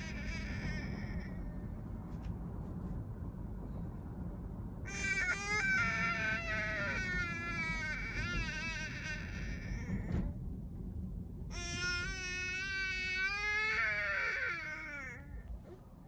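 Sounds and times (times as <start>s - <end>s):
infant crying: 0.0s - 1.5s, 4.9s - 10.3s, 11.5s - 15.6s
car low rumble: 0.0s - 16.0s.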